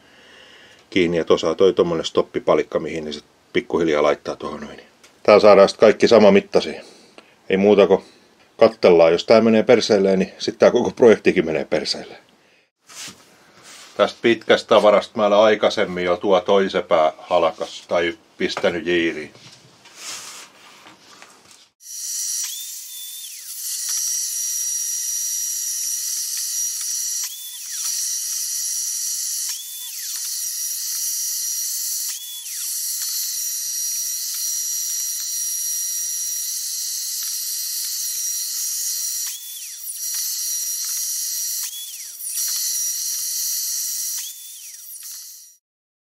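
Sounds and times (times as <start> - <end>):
miter saw motor whine: 21.8 - 45.6.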